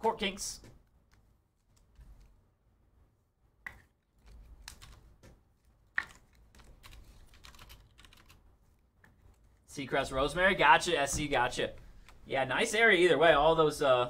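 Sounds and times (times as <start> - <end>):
typing on a computer keyboard: 4.2 - 5.0, 6.0 - 8.4.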